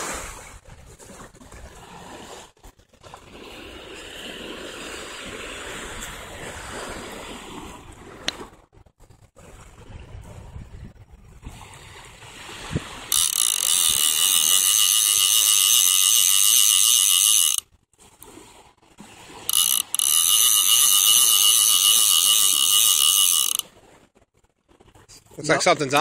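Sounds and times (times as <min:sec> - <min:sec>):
fishing reel ratcheting buzz: 0:13.1 - 0:17.6, 0:19.5 - 0:23.7.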